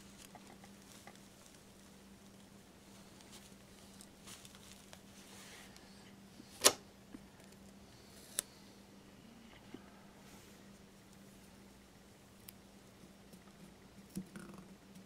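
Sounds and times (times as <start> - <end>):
faint rustling: 0.0 - 8.7
steady low hum: 0.0 - 15.0.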